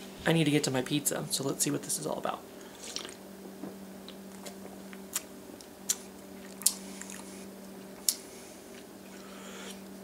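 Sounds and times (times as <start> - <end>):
steady low hum: 0.0 - 10.0
lip smacks and tongue clicks: 4.3 - 7.3.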